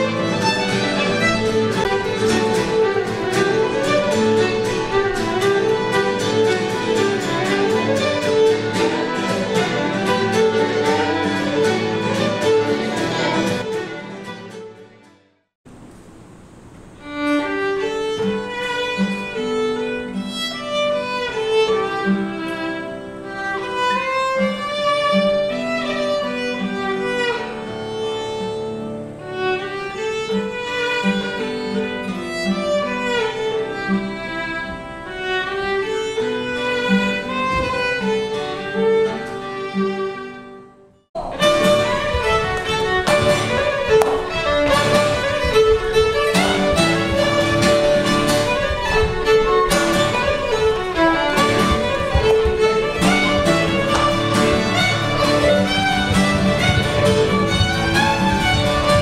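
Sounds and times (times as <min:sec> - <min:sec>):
fiddle playing lively tune: 0:00.0 - 0:15.0, 0:17.0 - 0:59.0
strummed acoustic guitar: 0:00.0 - 0:15.2, 0:17.0 - 0:59.0
sharp knocks: 0:41.2 - 0:48.5, 0:51.4 - 0:59.0.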